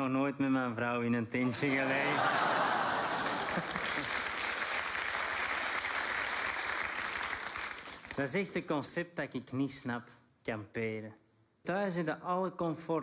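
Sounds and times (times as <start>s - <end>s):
audience applauding: 1.6s - 8.2s.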